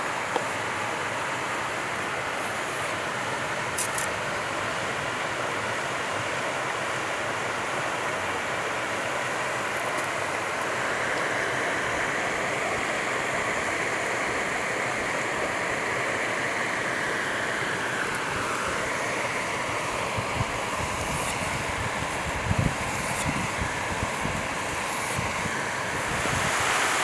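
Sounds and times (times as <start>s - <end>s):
steady rushing noise: 7.8s - 27.0s.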